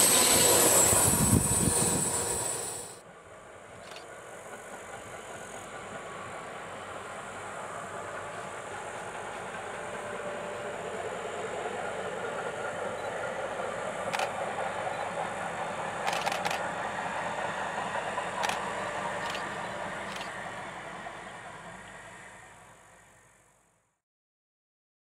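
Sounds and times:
distant train rumbling past: 0.0 - 23.7
sharp track clicks: 3.8 - 4.2, 14.0 - 15.2, 16.0 - 16.8, 18.2 - 20.5.

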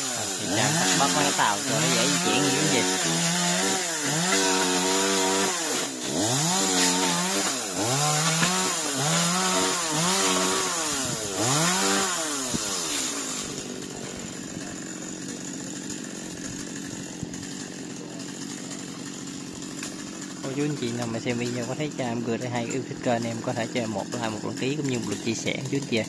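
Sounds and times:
chainsaw revving: 0.0 - 26.0.

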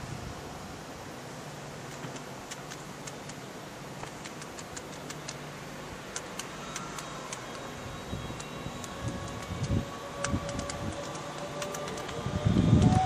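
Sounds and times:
electric train hum and hiss: 0.0 - 13.0
sharp ticks: 1.9 - 3.4, 4.0 - 5.5, 6.1 - 7.7, 8.3 - 12.2
thin electric whine: 5.5 - 13.0.

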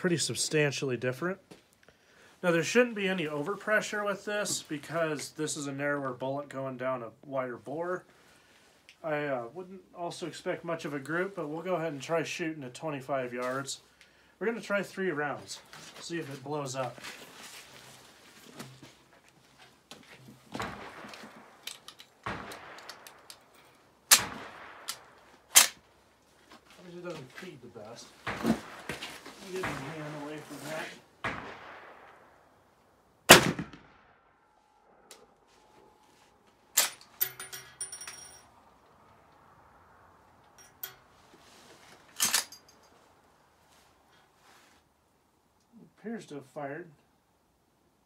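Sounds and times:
rifle shots echoing: 20.5 - 23.5, 24.1 - 25.8, 28.2 - 32.5, 33.3 - 34.2
rifle action clicks: 21.0 - 23.5
metallic clicks of rifle loading: 21.1 - 24.2, 24.8 - 25.8, 36.8 - 37.4, 42.1 - 42.9
brass case clattering on concrete: 37.2 - 38.5.

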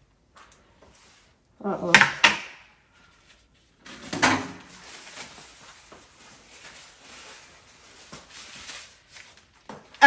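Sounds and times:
faint handling and shuffling: 0.0 - 1.6, 2.9 - 10.0.

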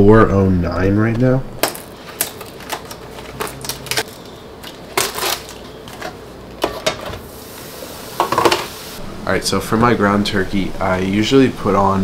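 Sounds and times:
cookware clattering: 5.0 - 7.2, 8.2 - 8.7.

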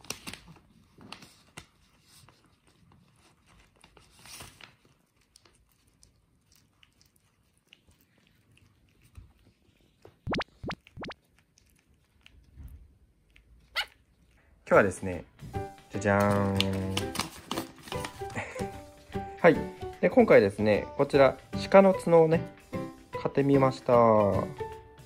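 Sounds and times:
paper crinkling and crunching: 0.0 - 6.0, 15.9 - 19.1
dog chewing paper pouch: 0.0 - 9.9, 14.8 - 24.5.

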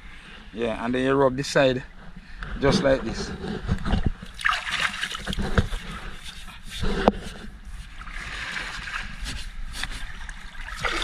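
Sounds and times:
water splashing and dripping: 4.2 - 5.8, 8.0 - 11.0
scouring pad scrubbing hull: 4.6 - 11.0.

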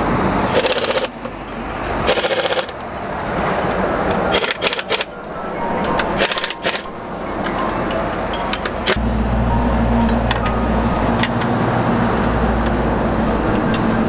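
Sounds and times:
wrench rapid clicking: 0.5 - 1.1, 2.1 - 2.8, 4.3 - 5.1.

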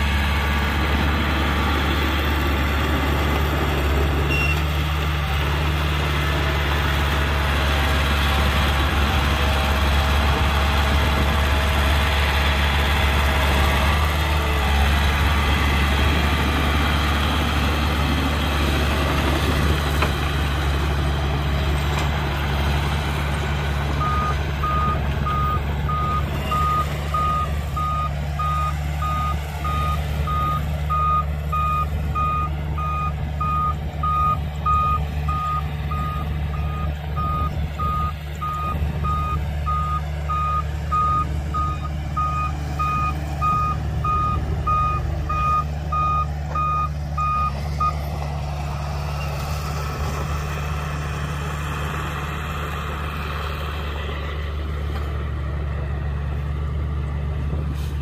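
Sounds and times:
diesel engine running: 0.0 - 58.0
reversing alarm beeping: 4.2 - 4.6, 24.0 - 48.0.

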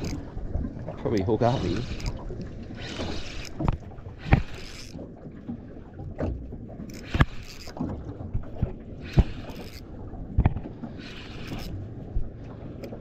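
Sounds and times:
water slapping against boat hull: 0.0 - 13.0.

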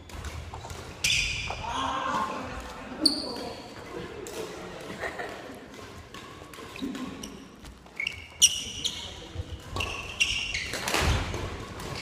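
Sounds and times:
sneakers squeaking on wooden floor: 0.0 - 1.6, 2.9 - 3.8, 6.3 - 12.0
racket hitting shuttlecock: 0.0 - 12.0.

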